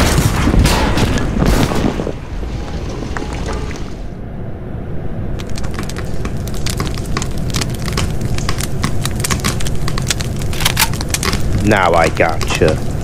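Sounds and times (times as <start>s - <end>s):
dense irregular crackling: 5.4s - 13.0s.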